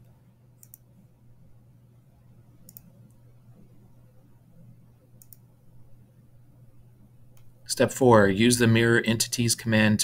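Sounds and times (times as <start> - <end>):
faint computer clicks: 0.0 - 0.9, 2.6 - 3.3, 5.2 - 5.5
low steady hum: 0.0 - 10.0.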